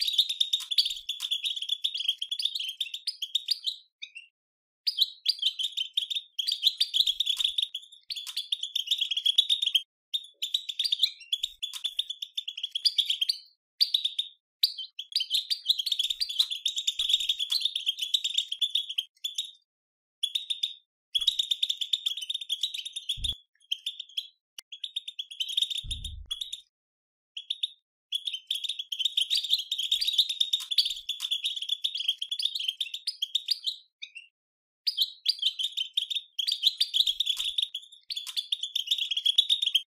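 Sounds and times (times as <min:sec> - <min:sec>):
goldfinch twittering chatter: 0:00.0 - 0:04.2.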